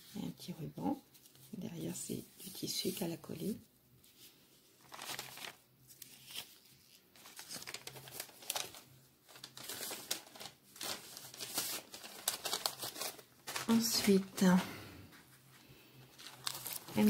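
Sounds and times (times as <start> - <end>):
paper rustling and crinkling: 4.0 - 17.0.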